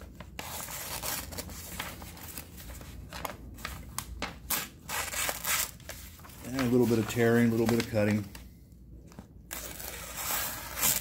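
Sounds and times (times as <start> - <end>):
paper rustling and tearing: 0.0 - 8.4, 9.5 - 11.0.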